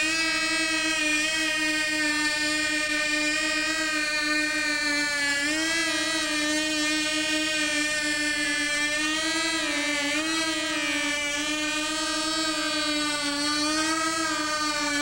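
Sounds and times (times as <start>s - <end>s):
model aircraft propellers buzzing: 0.0s - 15.0s.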